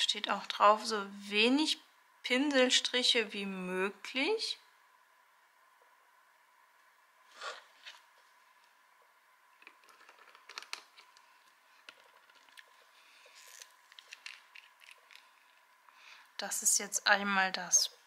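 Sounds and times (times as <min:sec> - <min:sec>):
small clicks taps and scrapes: 0:09.6 - 0:12.8
plastic rustle: 0:09.6 - 0:15.6.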